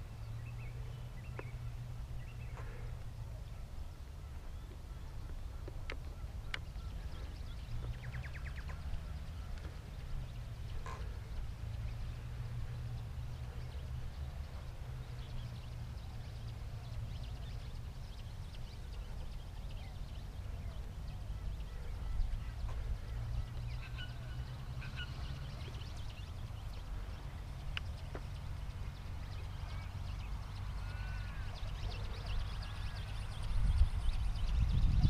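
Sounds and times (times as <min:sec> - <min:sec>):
faint chirps and clicks: 0:00.5 - 0:03.1, 0:04.6 - 0:12.1, 0:24.9 - 0:32.2
wind buffeting microphone: 0:25.3 - 0:35.0.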